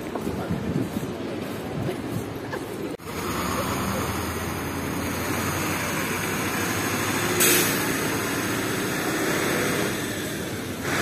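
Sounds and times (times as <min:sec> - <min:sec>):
traffic rumble: 0:00.0 - 0:11.0
short loud hiss: 0:07.4 - 0:07.9.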